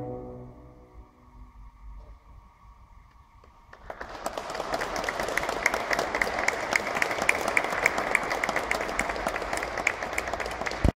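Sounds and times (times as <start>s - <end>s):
audience applauding: 3.4s - 10.9s.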